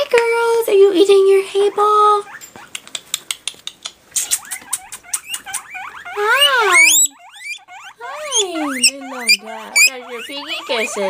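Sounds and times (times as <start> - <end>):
guinea pigs squeaking: 0.2 - 11.0
guinea pig clicks: 2.6 - 5.8.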